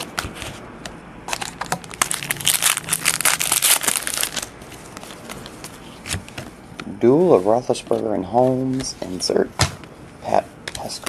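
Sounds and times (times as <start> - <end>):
wrapper tearing and crinkling: 1.3 - 4.6.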